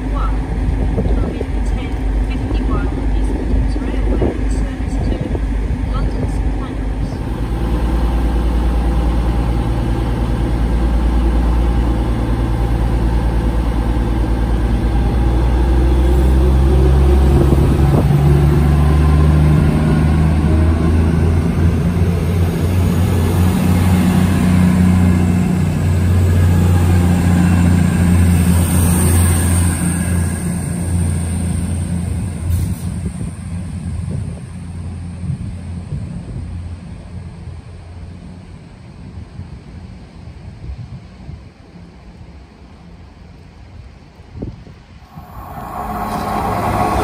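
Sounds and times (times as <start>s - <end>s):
diesel train engine drone: 0.0s - 47.0s
train running noise: 0.0s - 47.0s.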